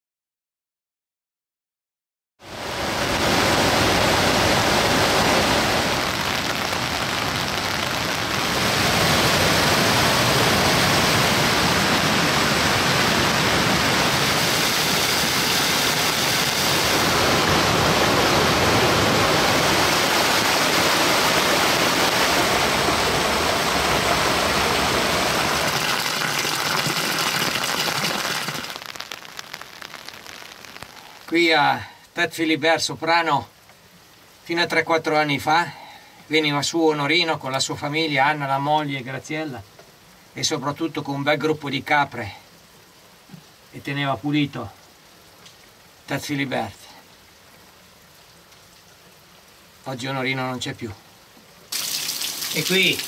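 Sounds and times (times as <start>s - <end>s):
stream rushing over rocks: 2.4s - 31.8s, 51.7s - 53.0s.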